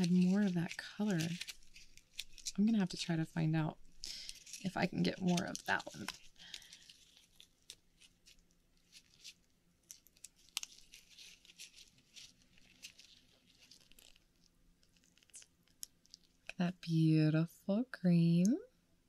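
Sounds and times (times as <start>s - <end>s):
fingers picking wet flesh: 4.4s - 16.6s.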